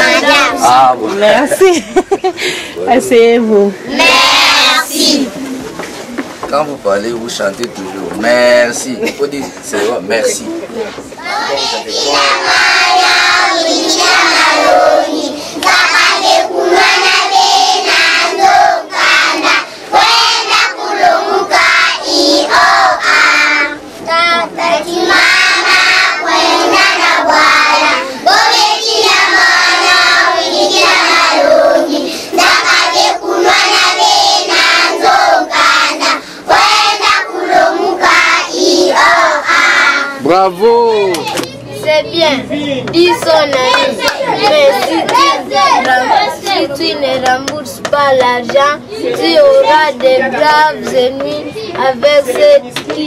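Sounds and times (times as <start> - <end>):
children singing in unison: 0.0 - 0.8, 3.9 - 5.4, 11.2 - 40.2.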